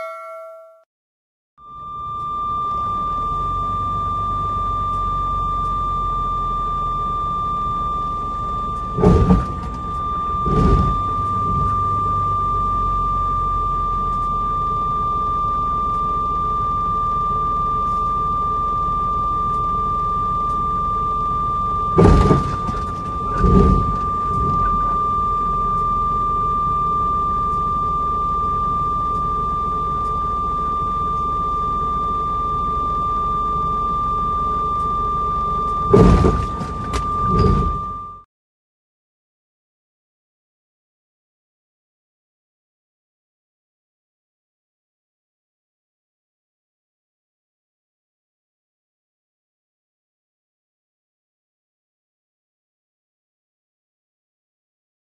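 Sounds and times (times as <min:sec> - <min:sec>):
steady high-pitched tone: 0:00.0 - 0:00.8, 0:01.6 - 0:38.3
truck engine running: 0:02.6 - 0:38.2
loud thumps: 0:22.0 - 0:22.8, 0:35.9 - 0:37.9.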